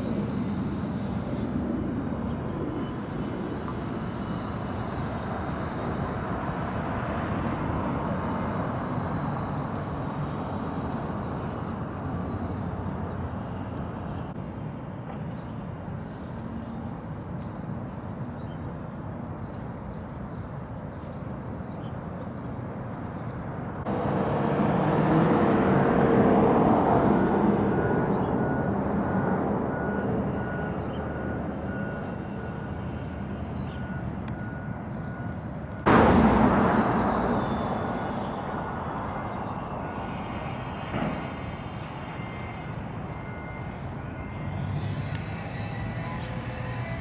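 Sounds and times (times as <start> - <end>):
loud rush of engine noise: 0.0 - 22.8, 23.5 - 47.0
engine passing: 23.8 - 47.0.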